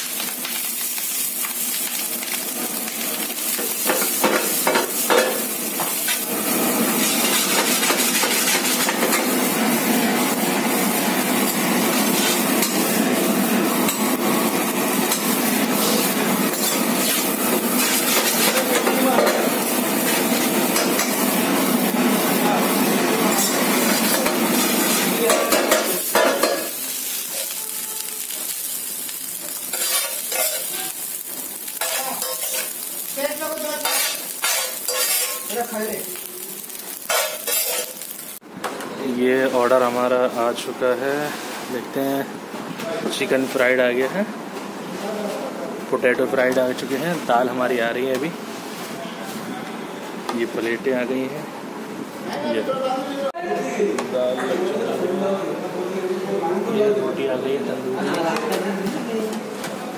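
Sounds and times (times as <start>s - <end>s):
rice sizzling in a pan: 0.0s - 38.4s.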